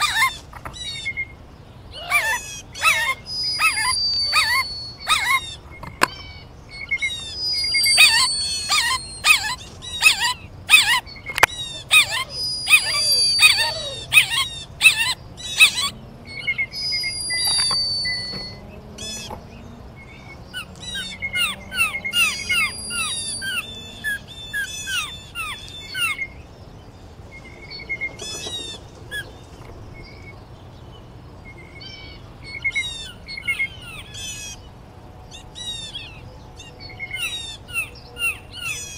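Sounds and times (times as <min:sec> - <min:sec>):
buzzy bird trills: 0:00.0 - 0:26.5
songbirds chirping: 0:00.0 - 0:38.9
high thin bird whistle: 0:02.8 - 0:05.4, 0:07.3 - 0:09.5, 0:12.1 - 0:14.2, 0:16.8 - 0:18.6.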